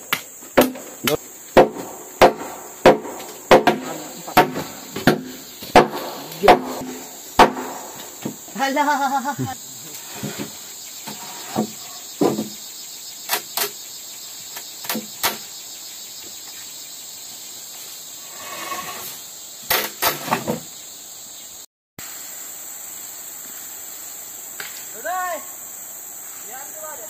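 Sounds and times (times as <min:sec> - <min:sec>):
dull thumps: 0:00.0 - 0:08.6, 0:09.4 - 0:12.6
high insect drone: 0:00.0 - 0:27.0
sharp knocks: 0:00.1 - 0:08.4, 0:10.2 - 0:12.6.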